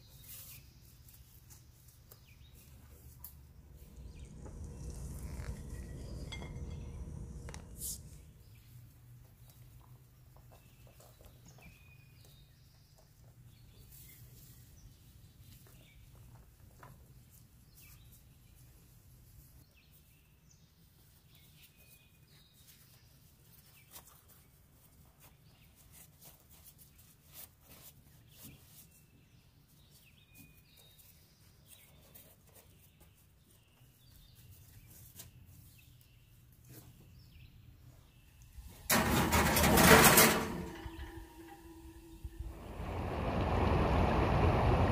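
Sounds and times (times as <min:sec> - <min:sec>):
steady low hum: 0:02.8 - 0:09.1, 0:38.4 - 0:44.9
loud low rumble: 0:03.4 - 0:08.5, 0:40.7 - 0:44.9
soft rustles and light taps: 0:21.8 - 0:37.4.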